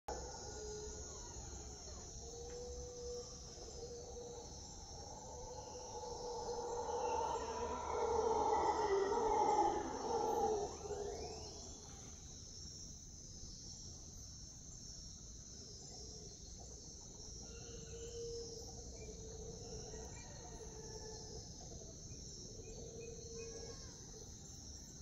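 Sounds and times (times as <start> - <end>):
howler monkeys roaring: 0.1 - 11.9
night insects chorus: 0.1 - 25.0.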